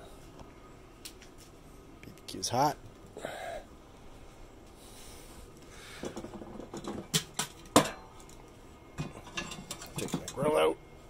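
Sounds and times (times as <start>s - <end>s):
metal grate clinking and knocking: 6.0s - 8.4s, 9.0s - 10.5s.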